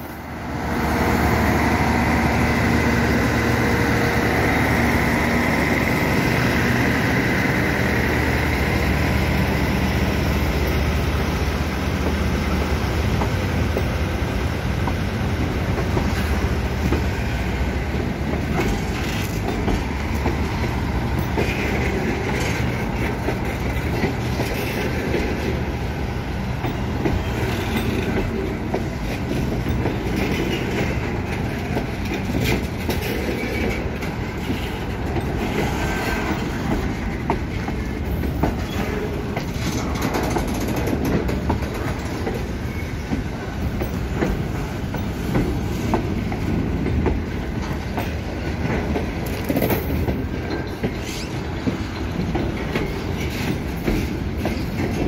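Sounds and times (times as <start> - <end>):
train wheels rumbling on rail: 0.0 - 55.0
wheels clicking over rail joints: 14.7 - 55.0.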